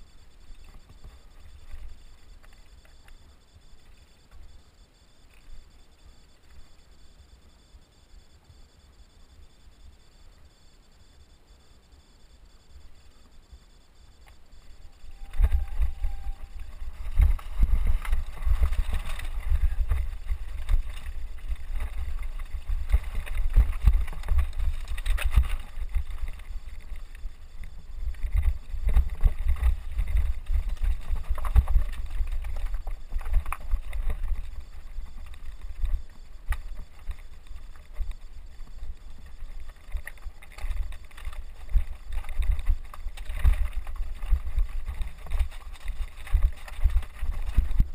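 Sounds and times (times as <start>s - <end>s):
low rumble on microphone: 12.8s - 47.9s
bike rattling over rocks: 15.2s - 27.2s, 28.0s - 38.2s, 39.2s - 47.9s
tyres crunching on loose stones: 15.3s - 47.9s.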